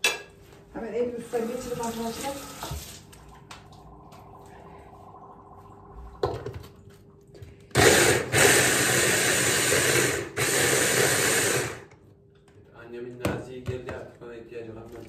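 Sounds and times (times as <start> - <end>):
blender motor chopping vegetables: 7.7 - 11.9.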